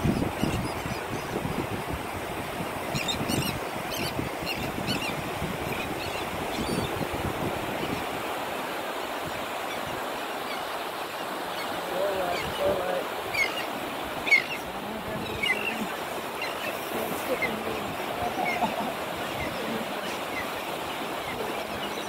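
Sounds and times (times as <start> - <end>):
surf washing on shore: 0.0 - 22.0
faint bird calls: 2.9 - 7.0, 9.5 - 22.0.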